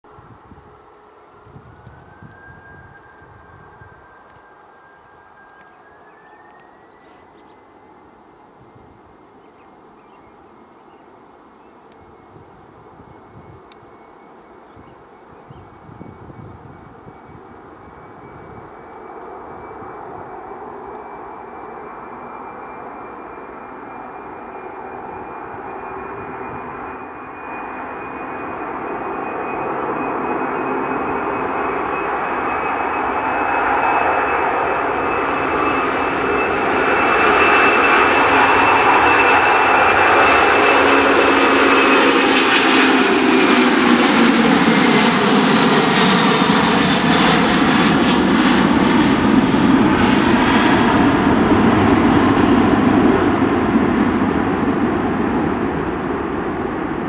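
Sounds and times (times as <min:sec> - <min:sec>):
high fan whine: 0:00.1 - 0:09.4
jet engines roaring at takeoff: 0:00.1 - 0:57.0.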